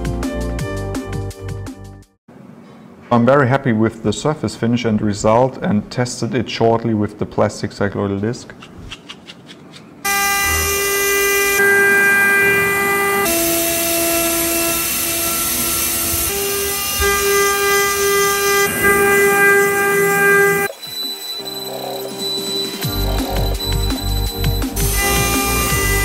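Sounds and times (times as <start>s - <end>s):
milling spindle cutting whine: 10.1s - 26.0s
thin high tone: 16.4s - 26.0s.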